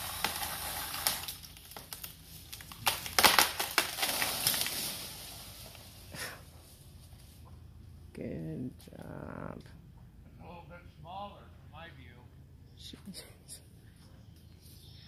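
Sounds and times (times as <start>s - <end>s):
tree limb snapping and crashing: 0.0s - 5.9s
leaves rustling: 0.0s - 7.4s.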